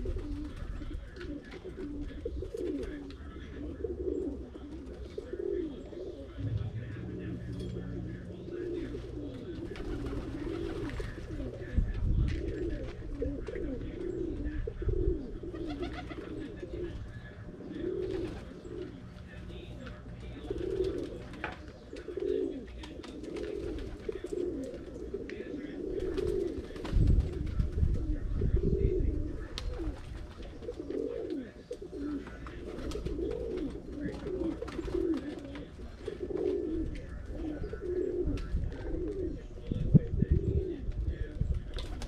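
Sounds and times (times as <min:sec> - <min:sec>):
pigeons cooing: 0:00.0 - 0:42.0
low rumble: 0:06.4 - 0:10.4.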